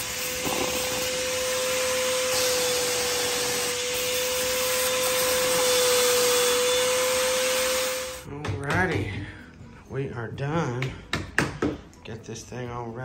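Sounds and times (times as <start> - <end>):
vacuum cleaner running: 0.0 - 8.3.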